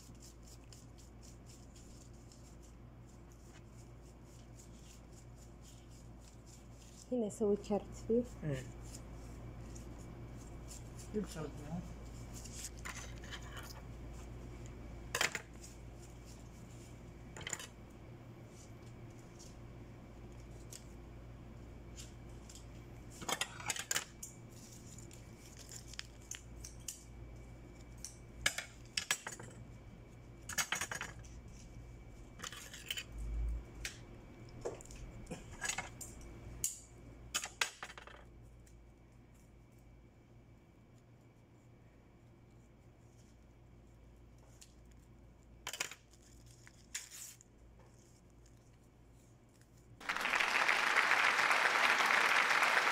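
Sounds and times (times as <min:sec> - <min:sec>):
ribbon rolls clicking and rustling: 0:00.0 - 0:07.1, 0:08.5 - 0:17.7, 0:21.9 - 0:29.5
faint steady hum: 0:00.0 - 0:52.9.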